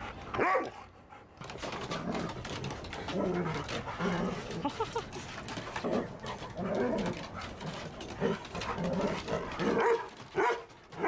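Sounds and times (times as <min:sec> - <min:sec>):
dogs play growling and whining: 0:00.0 - 0:11.0.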